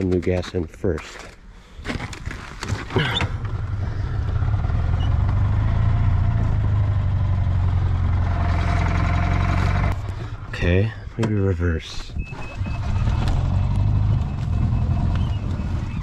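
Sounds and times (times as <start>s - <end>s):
golf cart engine running: 3.0s - 10.6s, 12.3s - 16.0s.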